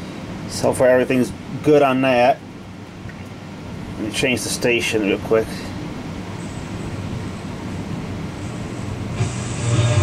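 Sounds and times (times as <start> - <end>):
radio static hiss: 4.0 - 10.0.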